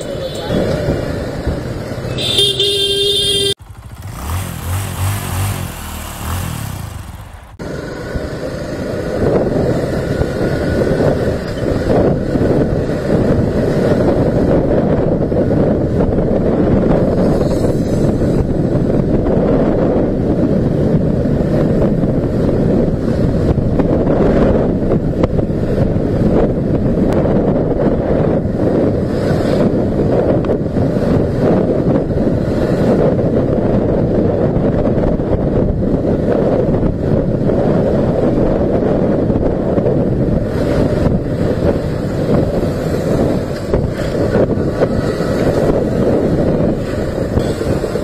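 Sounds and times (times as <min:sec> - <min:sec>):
wind buffeting microphone: 0:00.0 - 0:02.5, 0:03.5 - 0:48.0
motorcycle riding: 0:00.0 - 0:48.0
vehicle horn: 0:02.1 - 0:03.6.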